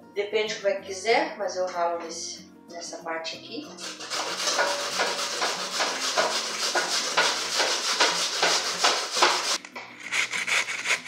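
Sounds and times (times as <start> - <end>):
root being grated by hand: 3.8 - 11.0.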